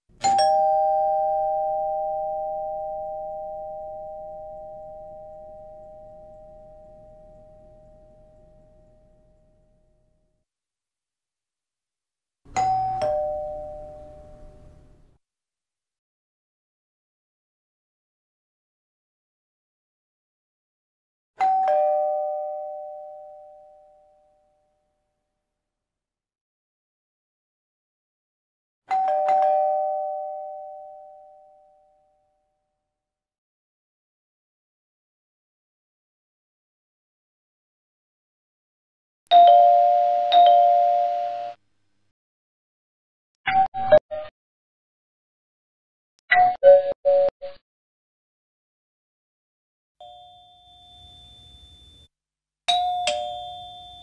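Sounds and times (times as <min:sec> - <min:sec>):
two-tone doorbell chime: 0:00.2 - 0:09.7, 0:12.5 - 0:14.7, 0:21.4 - 0:24.7, 0:28.9 - 0:32.2, 0:39.3 - 0:41.6, 0:50.0 - 0:52.1, 0:52.7 - 0:54.0.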